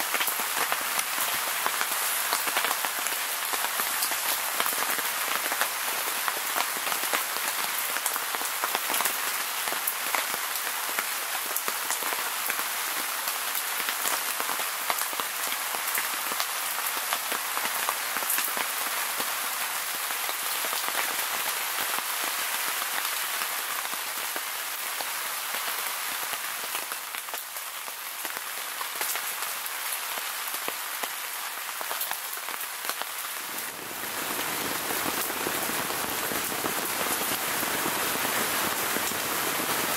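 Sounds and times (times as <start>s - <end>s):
rain falling: 0.0s - 39.9s.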